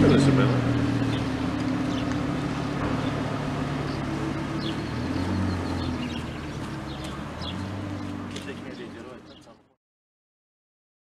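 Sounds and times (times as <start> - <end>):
car engine driving off: 0.0 - 9.6.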